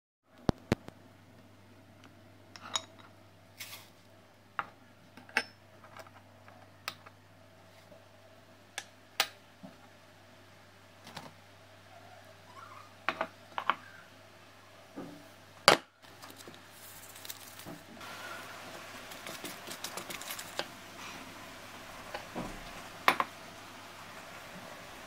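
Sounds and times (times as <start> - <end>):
spatula stirring batter: 16.1 - 21.2.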